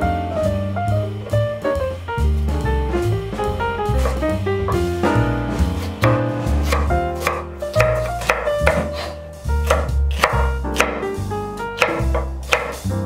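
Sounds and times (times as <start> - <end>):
jazz music with bass: 0.0 - 13.0
knife slicing on wooden board: 4.0 - 4.3, 5.8 - 11.0, 11.8 - 12.8.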